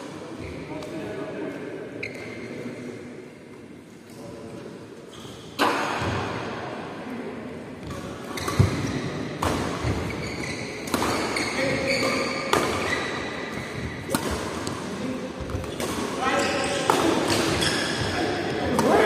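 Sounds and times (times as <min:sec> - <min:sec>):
court shoes squeaking: 0:02.0 - 0:02.8, 0:05.1 - 0:06.1, 0:07.8 - 0:14.8, 0:15.4 - 0:19.0
racket striking shuttlecock: 0:10.8 - 0:11.3, 0:12.0 - 0:14.8.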